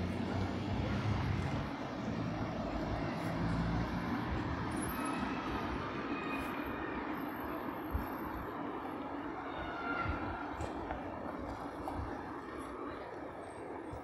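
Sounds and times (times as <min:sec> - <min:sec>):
vehicle engine hum: 0:00.0 - 0:06.0
street traffic noise: 0:00.0 - 0:14.0.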